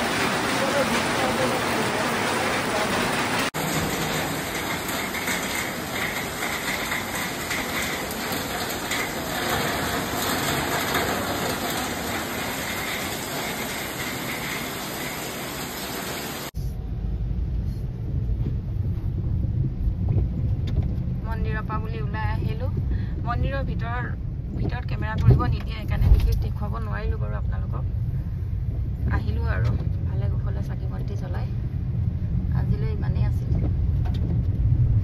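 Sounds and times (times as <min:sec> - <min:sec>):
heavy rain pouring: 0:00.0 - 0:16.6
car engine and road noise: 0:00.0 - 0:35.0.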